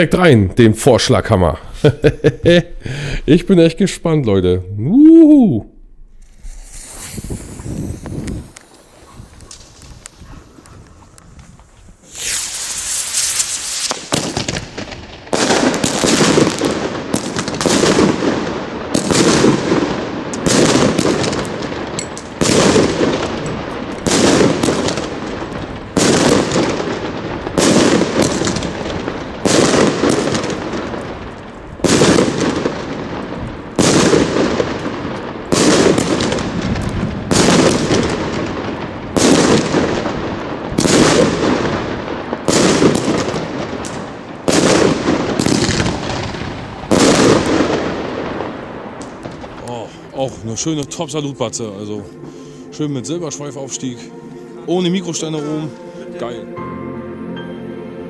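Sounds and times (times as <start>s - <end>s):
firework shells rising: 5.3s - 50.1s
firework salute bangs: 6.4s - 31.0s, 33.8s - 49.7s.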